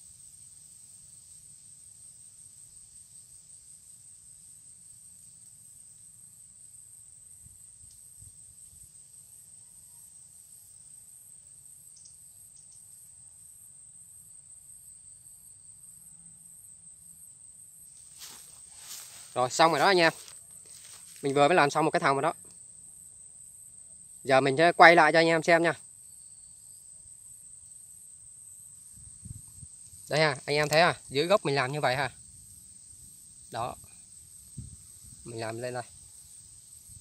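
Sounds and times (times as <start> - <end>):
faint pulsing insect note: 0.0 - 37.0
insects trilling: 0.0 - 37.0
faint clicks of snare cable: 30.5 - 30.9.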